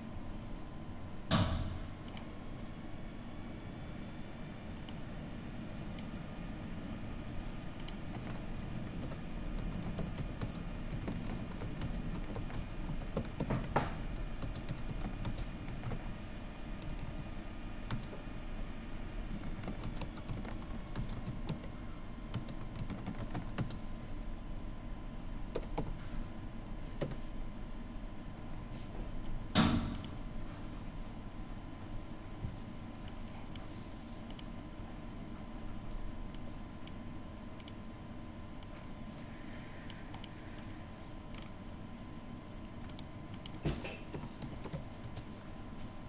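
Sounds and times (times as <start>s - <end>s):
computer keyboard typing: 7.3s - 16.2s, 16.8s - 17.3s, 17.9s - 18.2s, 19.3s - 21.7s, 22.3s - 23.8s, 25.5s - 26.0s, 26.8s - 27.2s, 28.4s - 28.8s, 42.7s - 45.5s.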